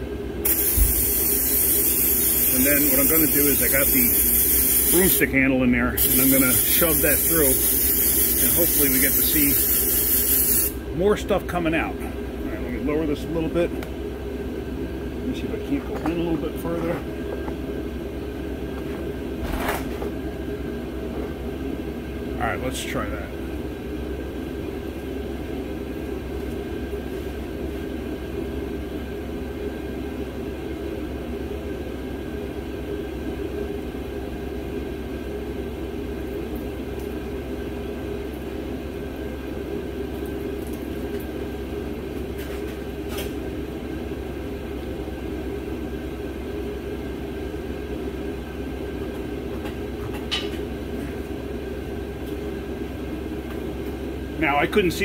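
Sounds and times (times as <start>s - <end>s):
low machine drone: 10.8s - 26.9s.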